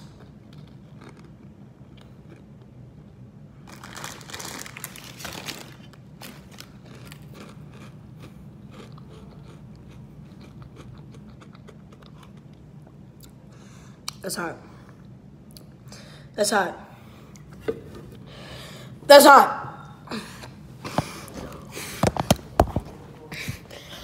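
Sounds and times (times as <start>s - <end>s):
crunching and chewing snack: 0.0s - 13.4s.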